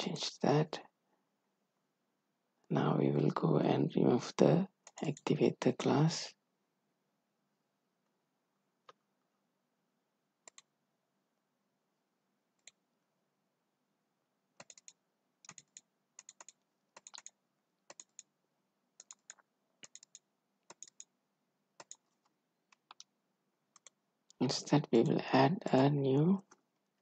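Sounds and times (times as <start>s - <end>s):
faint computer mouse clicks: 10.4s - 10.7s.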